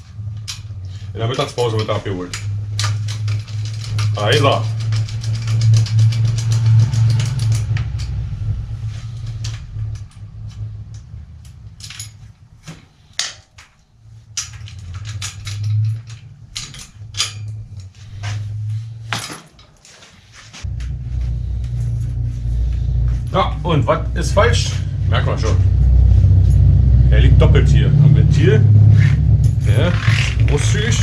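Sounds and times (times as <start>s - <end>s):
low motor-like hum: 0.0s - 19.7s, 20.5s - 31.0s
tools clicking on bicycle wheel: 0.4s - 8.4s, 9.2s - 18.3s.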